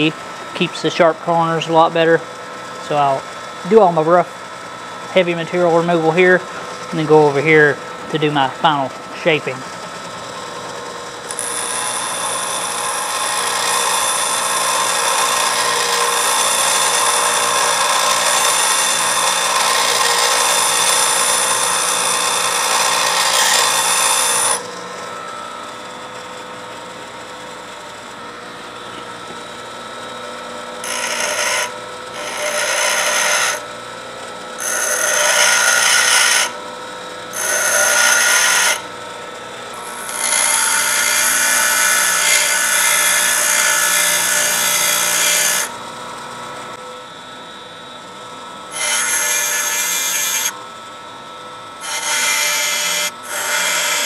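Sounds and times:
grinder motor humming: 0:00.0 - 0:54.0
grinder wheel grinding metal: 0:05.0 - 0:26.2, 0:30.8 - 0:33.7, 0:34.6 - 0:36.6, 0:37.3 - 0:38.9, 0:39.7 - 0:46.4, 0:48.7 - 0:50.6, 0:51.6 - 0:54.0.

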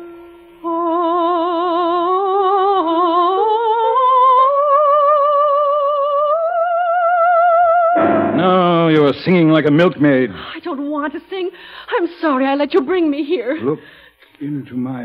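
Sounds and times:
woman singing with vibrato: 0:00.6 - 0:08.3.

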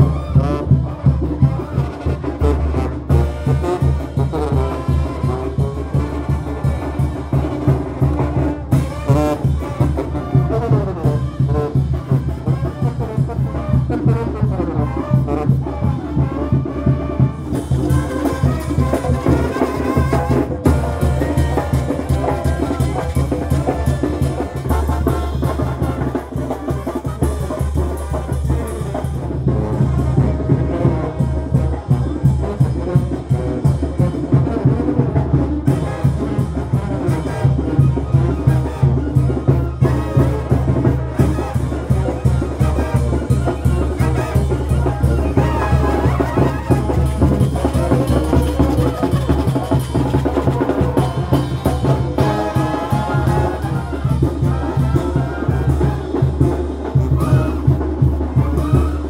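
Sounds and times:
conga drum: 0:00.0 - 0:59.0
snare drum: 0:00.0 - 0:59.0
trumpets: 0:00.0 - 0:59.0
cymbals: 0:35.7 - 0:59.0.

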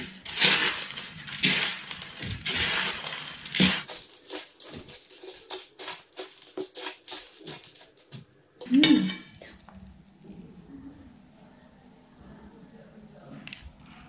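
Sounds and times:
dry noodles crunching: 0:00.0 - 0:08.4.

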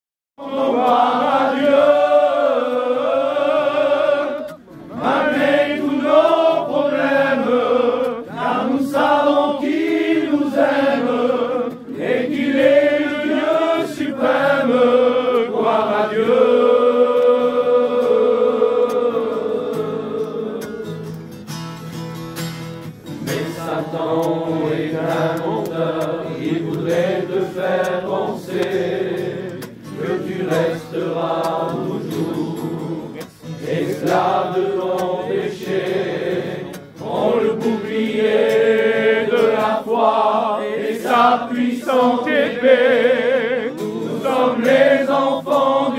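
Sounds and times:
men singing together: 0:00.4 - 0:21.1, 0:23.2 - 0:45.9
acoustic guitar: 0:00.4 - 0:45.9.

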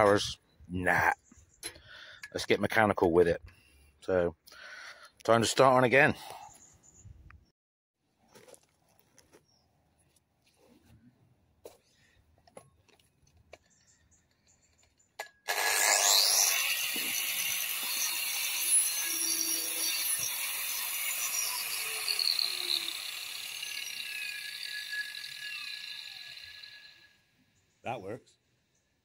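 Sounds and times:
angle grinder grinding wood: 0:15.5 - 0:27.2.

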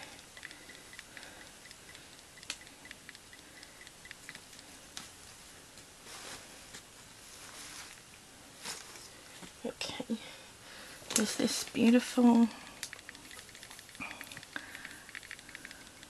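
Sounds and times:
faint rustling of lace: 0:04.6 - 0:09.6.

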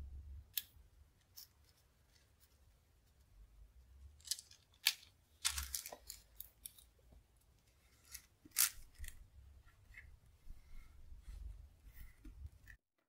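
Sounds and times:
paper rustling and crinkling: 0:04.2 - 0:06.9.

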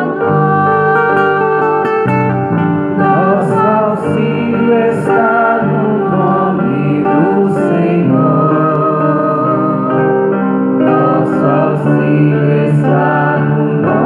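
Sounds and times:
woman singing into a microphone: 0:00.0 - 0:02.2, 0:03.0 - 0:10.2, 0:10.9 - 0:14.0
sustained instrumental accompaniment: 0:00.0 - 0:14.0.

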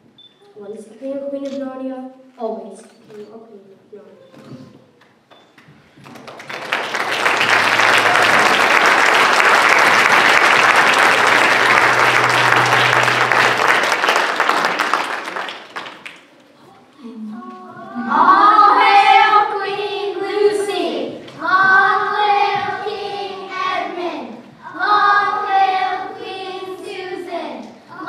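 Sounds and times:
audience applauding: 0:06.0 - 0:16.4
children singing: 0:07.6 - 0:14.5, 0:17.7 - 0:28.0.

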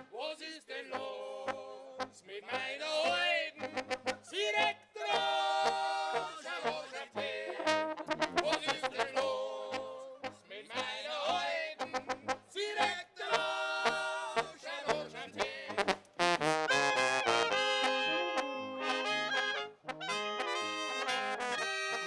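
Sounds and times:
live brass band playing: 0:03.6 - 0:04.2, 0:07.5 - 0:09.3, 0:11.8 - 0:12.5, 0:13.8 - 0:22.0.

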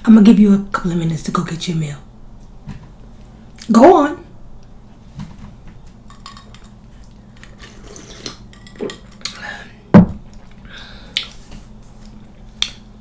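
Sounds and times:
knock on table: 0:10.0 - 0:10.2.

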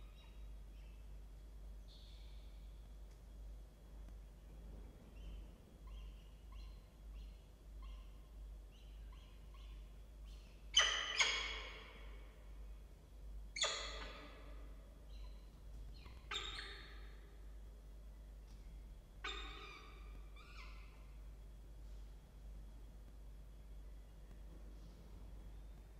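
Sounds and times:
loud harsh bird calls: 0:19.2 - 0:21.1.

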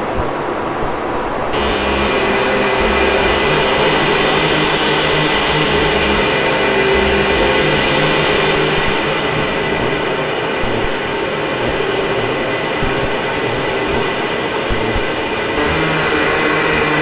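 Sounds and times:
synthesizer noise hiss: 0:01.6 - 0:17.0
throbbing low rumble: 0:01.6 - 0:17.0
held synthesizer tones: 0:10.6 - 0:15.1.

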